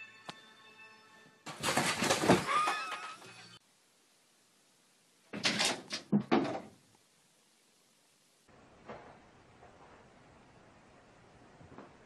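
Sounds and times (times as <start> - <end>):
cats landing knocks and clatter: 1.5 - 3.1, 5.4 - 6.8.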